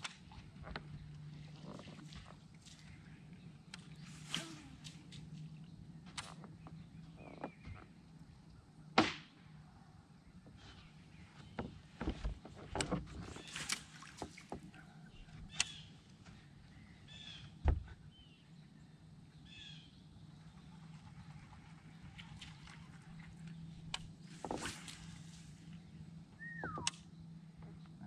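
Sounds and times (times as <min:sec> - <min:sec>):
steady low hum: 0:00.0 - 0:28.0
fishing rod swish: 0:04.1 - 0:05.1
knocks on boat deck: 0:17.6 - 0:17.9
dull thump: 0:17.6 - 0:18.0
bird chirps: 0:26.3 - 0:28.0.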